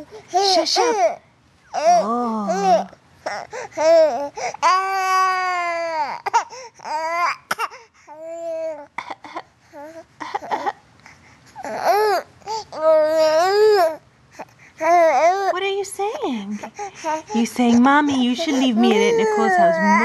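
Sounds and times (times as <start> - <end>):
infant cooing and babbling: 0.0 - 8.9, 11.6 - 15.5, 16.6 - 17.4, 18.4 - 20.0.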